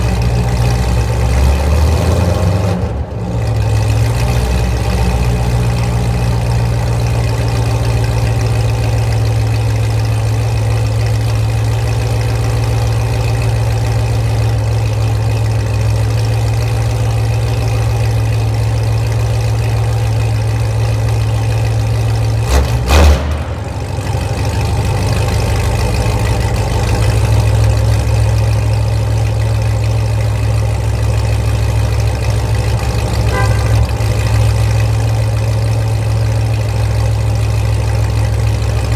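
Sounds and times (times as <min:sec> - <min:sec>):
car engine idling loud exhaust: 0:00.0 - 0:38.9
sharp exhaust burst: 0:22.7 - 0:24.6.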